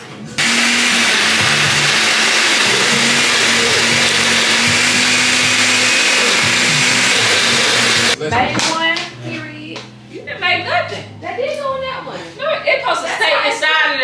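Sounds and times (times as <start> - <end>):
blender running: 0.4 - 8.2.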